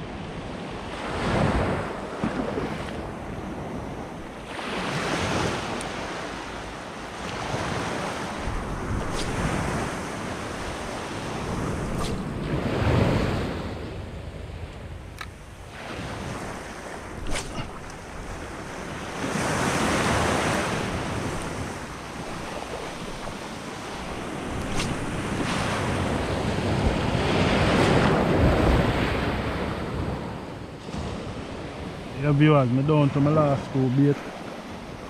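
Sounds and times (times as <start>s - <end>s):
wind buffeting microphone: 7.3s - 32.0s
surf washing onto beach: 15.6s - 30.2s.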